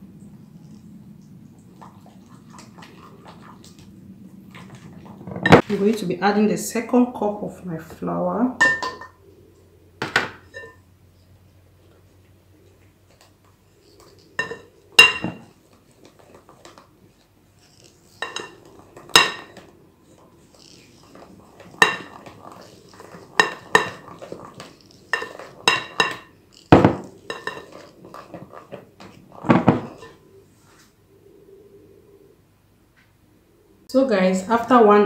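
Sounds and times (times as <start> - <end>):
soft scraping and rustling: 15.4 - 31.1
utensil clinking against glass bowl: 21.6 - 26.3.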